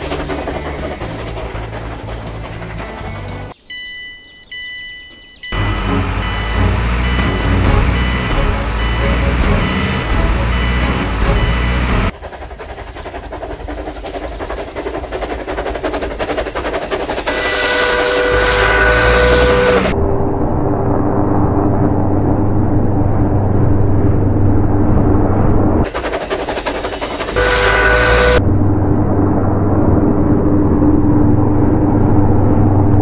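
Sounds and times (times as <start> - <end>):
train clattering over rail joints: 0.0 - 3.6, 5.5 - 19.9, 25.8 - 28.4
train horn blast: 5.6 - 12.1, 17.3 - 20.0, 27.4 - 28.4.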